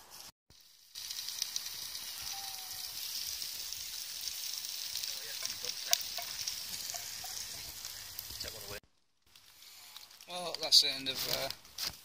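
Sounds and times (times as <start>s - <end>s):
meat sizzling in a pan: 0.1s - 8.8s, 9.4s - 11.5s
fat popping: 5.4s - 8.5s.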